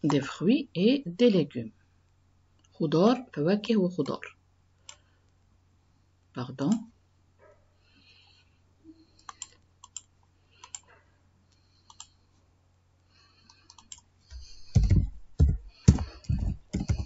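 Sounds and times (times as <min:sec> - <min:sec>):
computer keyboard typing: 0:09.2 - 0:10.9, 0:11.8 - 0:12.1, 0:13.5 - 0:17.0.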